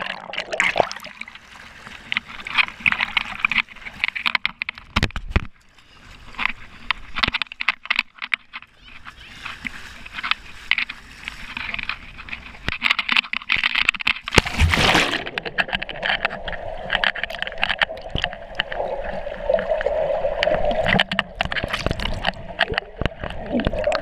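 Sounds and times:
splash into pool: 0:14.4 - 0:15.5
muffled underwater bubbling: 0:14.8 - 0:24.0
clicks: 0:20.4 - 0:24.0.

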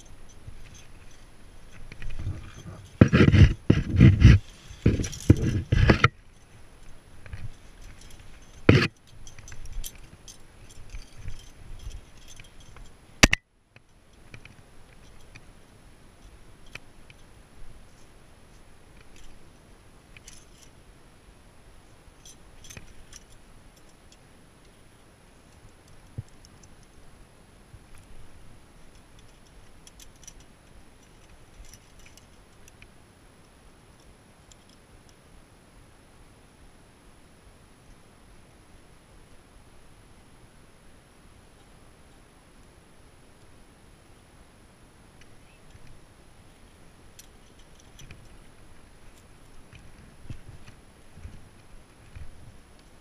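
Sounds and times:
carabiners clinking: 0:00.0 - 0:13.4, 0:20.2 - 0:20.7, 0:22.2 - 0:24.0, 0:28.9 - 0:32.7, 0:47.2 - 0:50.6
low steady rumble: 0:00.0 - 0:53.0.

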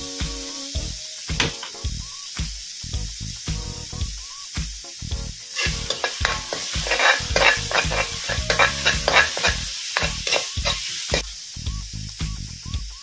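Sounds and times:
food sizzling in oil: 0:00.0 - 0:13.0
metal spatula scraping wok: 0:05.5 - 0:11.2.

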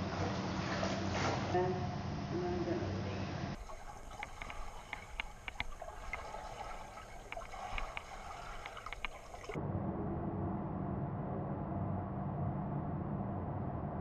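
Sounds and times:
steady low hum: 0:00.0 - 0:14.0
muffled underwater strokes: 0:03.6 - 0:09.6.

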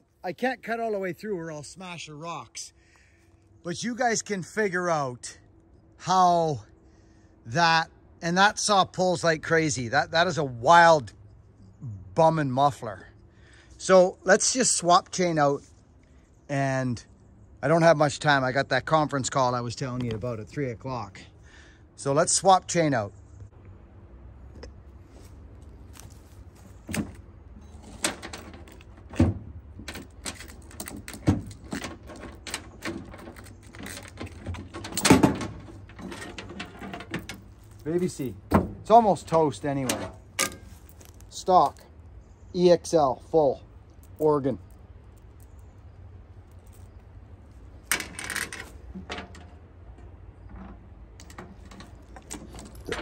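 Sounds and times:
metal clicks and rattles: 0:26.9 - 0:39.0, 0:43.8 - 0:53.0
saw chain clinking and rattling: 0:29.8 - 0:41.8, 0:51.2 - 0:53.0.

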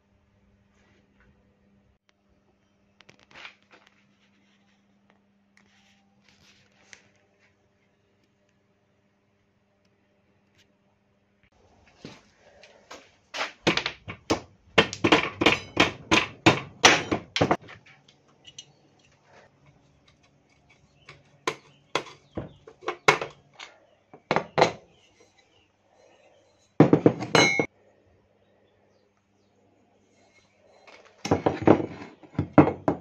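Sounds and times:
metal knocks and clanks: 0:26.8 - 0:27.7.

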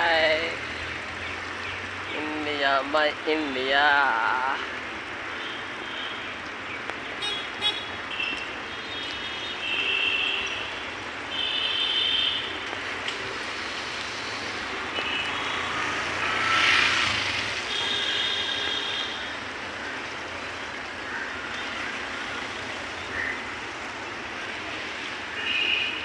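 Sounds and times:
wind and rolling noise: 0:00.0 - 0:09.7, 0:12.2 - 0:17.8.

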